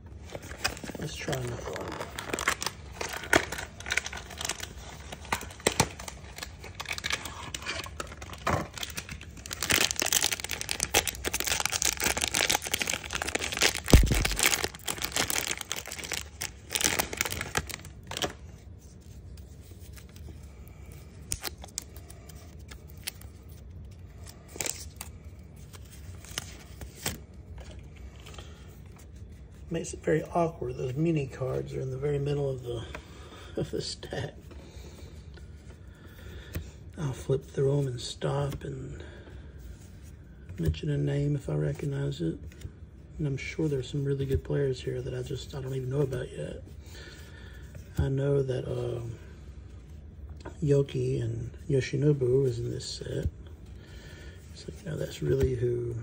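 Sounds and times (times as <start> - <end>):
foil wrapper tearing and crinkling: 0.5 - 18.4.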